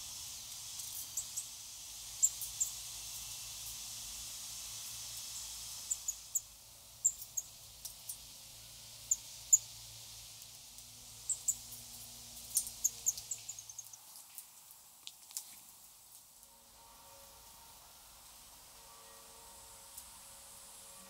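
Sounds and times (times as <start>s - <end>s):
songbirds chirping: 12.5s - 14.1s.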